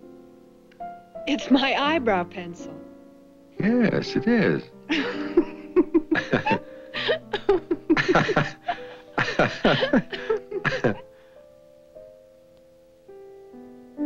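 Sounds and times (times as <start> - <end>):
soft background music: 0.0 - 14.0
woman laughing: 4.9 - 11.0.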